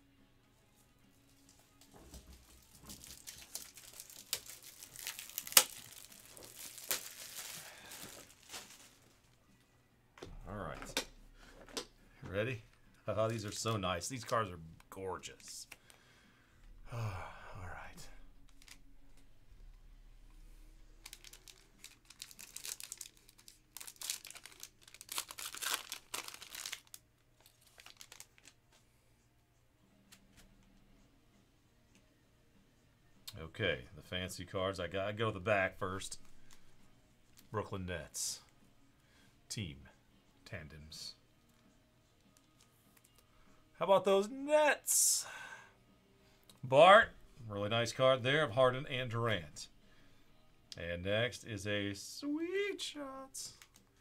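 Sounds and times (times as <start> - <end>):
plastic wrapping crinkling: 2.4 - 9.4, 18.4 - 19.2, 21.0 - 28.6, 53.5 - 54.0
foil card pack tearing: 2.9 - 9.0, 21.0 - 28.6.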